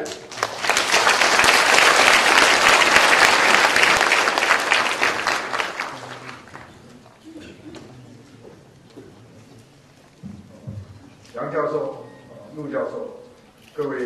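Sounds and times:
audience applauding: 0:00.0 - 0:07.0.

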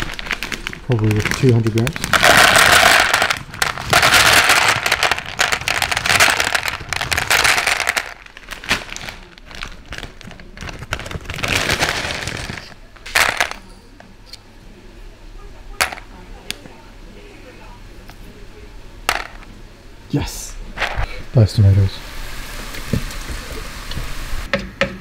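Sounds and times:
plastic packet crinkling: 0:00.0 - 0:13.6
dry pasta rattling onto scale: 0:00.9 - 0:13.6.

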